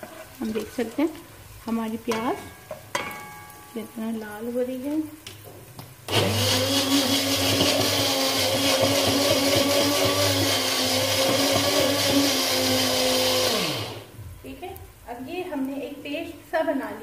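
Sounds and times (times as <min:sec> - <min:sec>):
electric blender running: 0:06.1 - 0:14.1.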